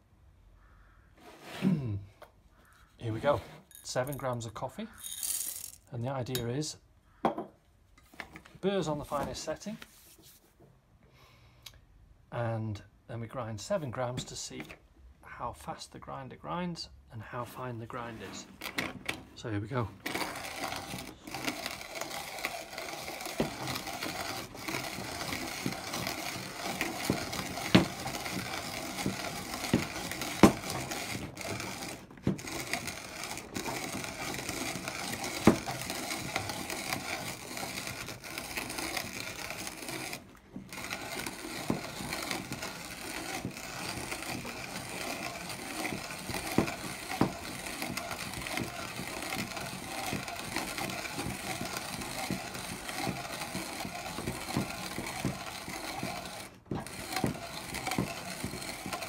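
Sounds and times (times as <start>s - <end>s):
hand coffee grinder crunching: 3.7s - 5.9s, 19.7s - 59.0s
coffee beans cracking: 4.9s - 5.9s, 20.1s - 59.0s.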